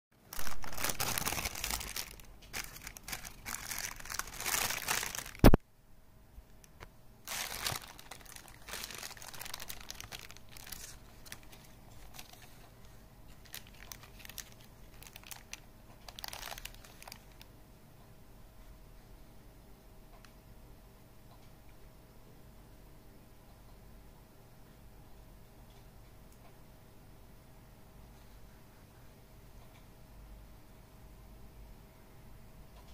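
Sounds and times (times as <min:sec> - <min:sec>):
paper wrapper crinkling: 0:00.2 - 0:05.6, 0:06.6 - 0:17.5.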